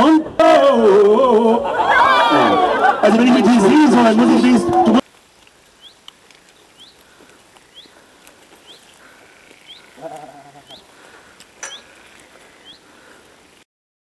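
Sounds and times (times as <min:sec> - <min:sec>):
goat bleating: 0:08.8 - 0:12.8.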